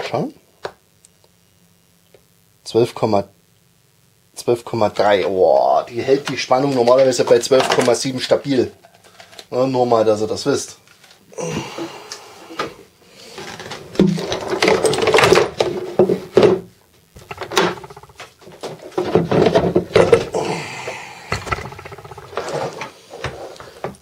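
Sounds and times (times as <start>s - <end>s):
plastic scraping and knocking: 13.4s - 20.3s.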